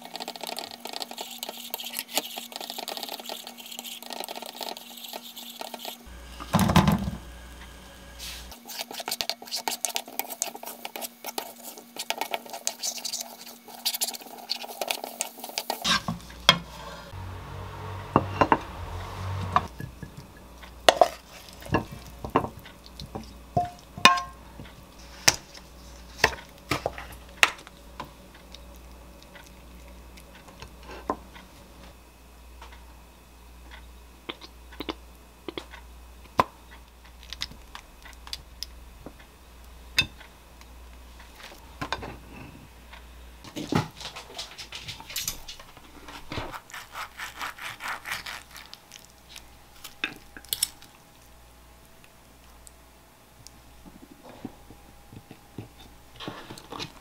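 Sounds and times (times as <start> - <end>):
frying hiss: 0.0 - 17.2
wooden spatula scraping wok: 0.5 - 22.5.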